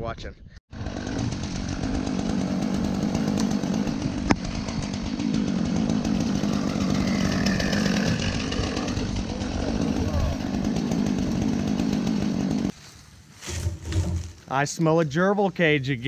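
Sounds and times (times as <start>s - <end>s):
chainsaw running: 0.7s - 12.8s.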